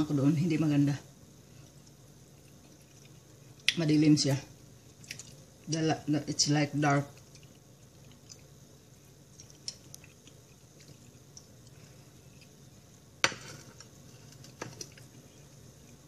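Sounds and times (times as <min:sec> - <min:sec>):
quiet chewing: 0:01.4 - 0:03.8, 0:04.8 - 0:05.7, 0:07.0 - 0:16.0.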